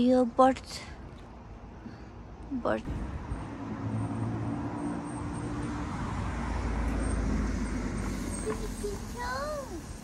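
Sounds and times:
vehicle engine hum: 2.8 - 10.0.

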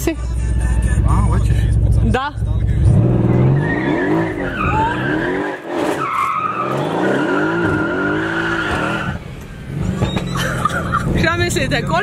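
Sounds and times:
car engine accelerating: 0.0 - 12.0
tyre squeal: 3.4 - 9.2, 9.8 - 11.0.

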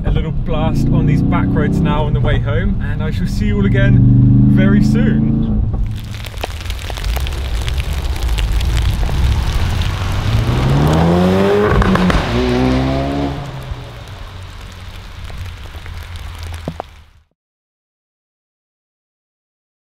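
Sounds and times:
car engine accelerating past: 3.9 - 5.7, 8.3 - 15.0.

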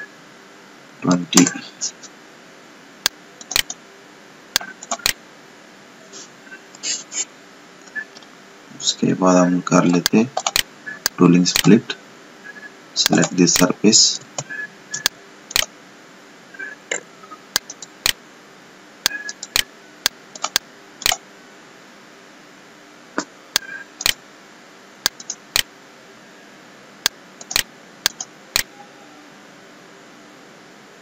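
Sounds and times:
faint steady hum: 0.0 - 31.0
computer mouse clicking: 3.0 - 3.8, 4.6 - 5.2, 10.0 - 11.7, 14.4 - 15.7, 17.5 - 18.2, 19.1 - 21.2, 25.0 - 25.7, 27.0 - 28.7.

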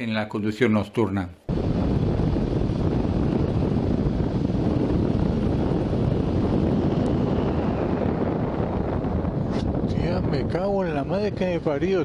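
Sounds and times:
wind rushing on microphone: 1.5 - 12.0
motorcycle engine and road noise: 2.3 - 11.8.

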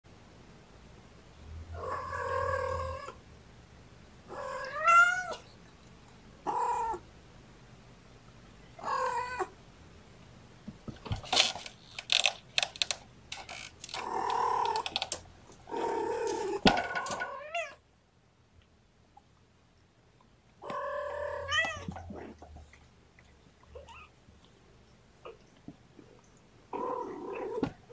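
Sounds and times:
cat meowing: 4.3 - 5.4, 6.4 - 7.0, 8.8 - 9.6, 20.6 - 22.0
sharp clicks and rattles: 11.0 - 15.3.

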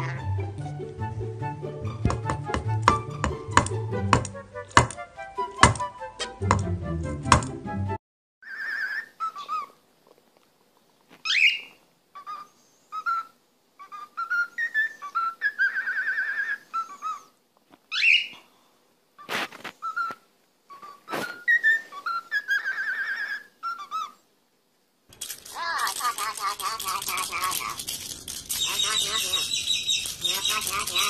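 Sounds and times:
cockatiel whistling a tune: 12.3 - 13.3, 13.9 - 17.3, 19.8 - 20.2, 20.8 - 24.1, 28.6 - 31.0
sharp clicks: 25.1 - 31.0.

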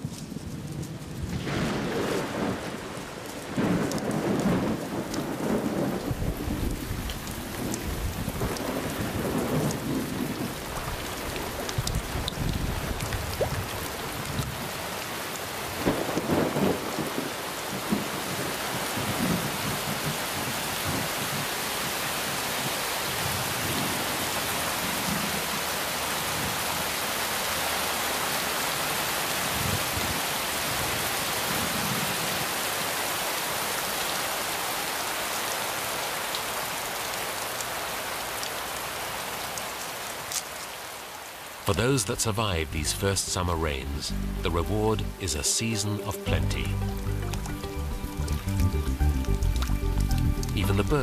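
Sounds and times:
heavy rain falling: 0.0 - 51.0
thunder rumbling: 0.6 - 14.6.

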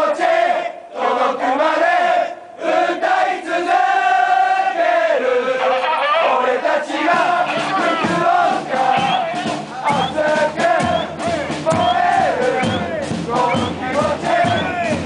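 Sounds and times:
crowd chanting in unison: 0.0 - 15.0
drum beats: 6.6 - 15.0.

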